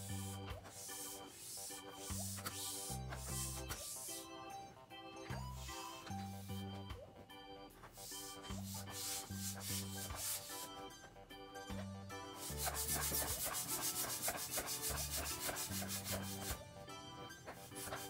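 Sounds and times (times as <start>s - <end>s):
balloon pump air rushing: 0.0s - 4.3s, 7.9s - 10.9s, 12.4s - 16.6s
background music: 0.0s - 18.0s.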